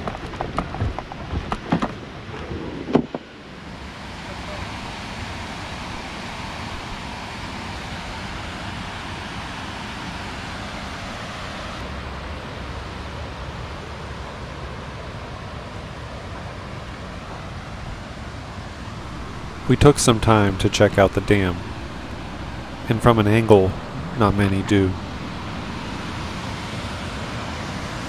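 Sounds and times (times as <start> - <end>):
river water rushing over dam: 19.0 - 28.0.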